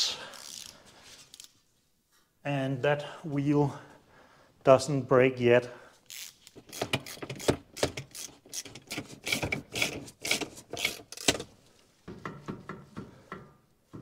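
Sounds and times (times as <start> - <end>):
rasping ratchet strokes: 6.1 - 11.4.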